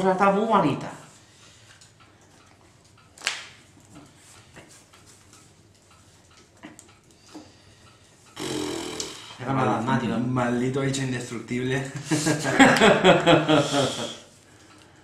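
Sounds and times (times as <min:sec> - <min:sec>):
breathy noise: 0:07.4 - 0:09.6.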